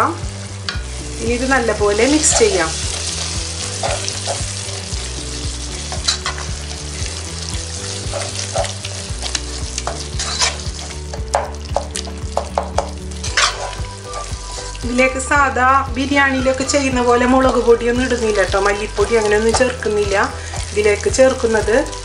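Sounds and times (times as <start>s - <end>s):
masala sizzling in oil: 0.0s - 22.0s
spoon scraping and tapping pan: 0.7s - 1.0s, 3.8s - 4.5s, 5.8s - 6.5s, 8.0s - 14.4s, 19.5s - 19.8s.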